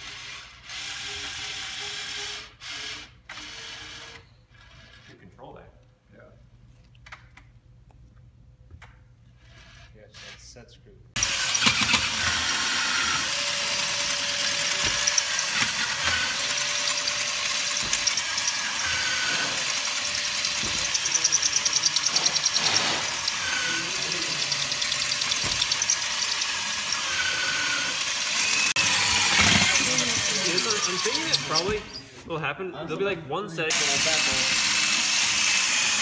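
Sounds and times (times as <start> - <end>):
robot intake motor rushing: 11.2 - 32.1.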